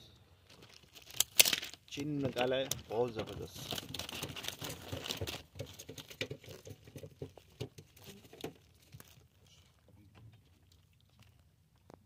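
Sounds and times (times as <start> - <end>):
plastic sheeting crinkling: 0.4 - 9.8.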